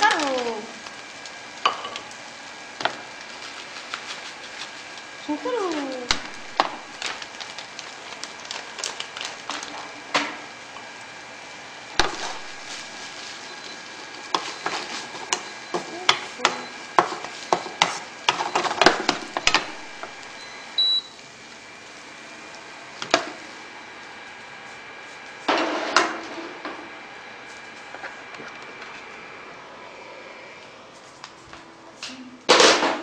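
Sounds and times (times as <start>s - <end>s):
food sizzling: 0.0s - 32.5s
cooktop hum: 0.0s - 33.0s
spatula scraping frying pan: 14.3s - 18.9s
short high beep: 20.4s - 21.1s.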